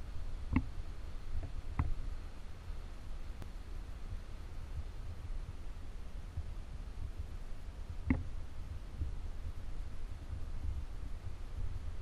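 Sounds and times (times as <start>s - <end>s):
low outdoor rumble: 0.0s - 12.0s.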